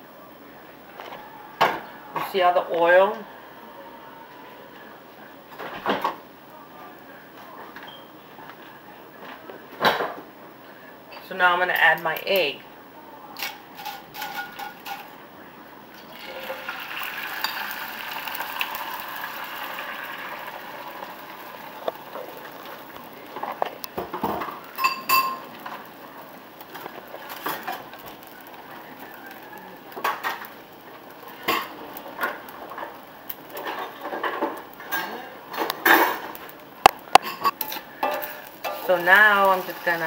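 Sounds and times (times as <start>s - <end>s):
utensil clinking on skillet and bowl: 13.4s - 15.1s, 16.0s - 21.1s, 24.7s - 25.5s, 37.2s - 39.0s
egg sizzling in skillet: 15.9s - 40.0s.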